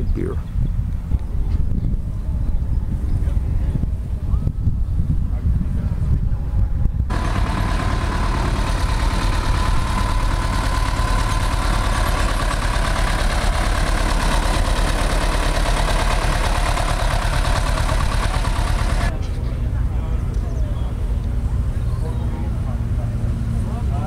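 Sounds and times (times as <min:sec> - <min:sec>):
low wind rumble: 0:00.0 - 0:24.0
tractor engine clattering: 0:07.1 - 0:19.6.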